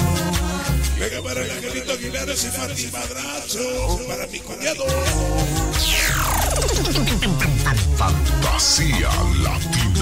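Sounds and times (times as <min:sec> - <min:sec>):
electronic dance music heavy bass: 0:00.0 - 0:10.0
falling synthesizer sweep: 0:05.4 - 0:08.1.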